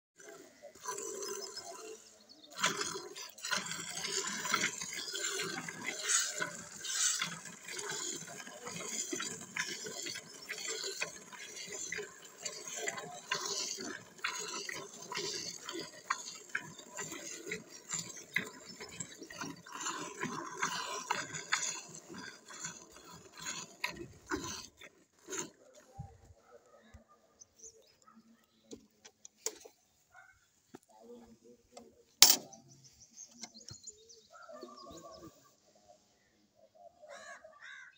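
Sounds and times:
milk squirting into metal bucket: 0.2s - 26.0s.

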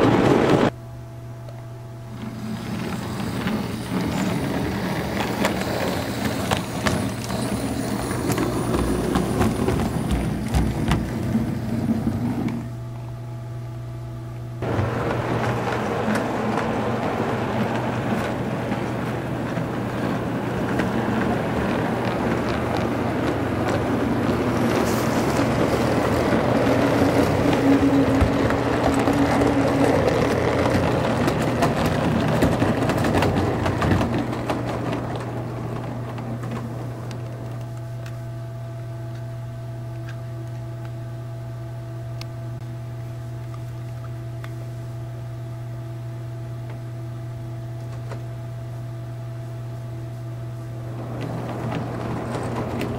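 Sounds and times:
model train rumbling on track: 0.0s - 0.7s, 2.1s - 12.7s, 14.6s - 38.2s, 50.9s - 52.9s
steady low hum: 0.0s - 52.9s.

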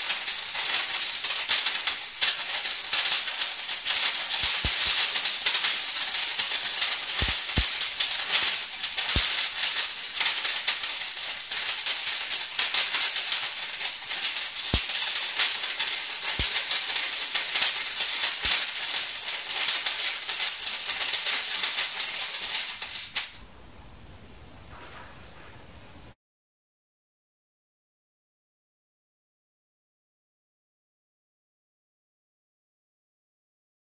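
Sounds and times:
firework torch hissing and crackling: 0.0s - 23.4s.

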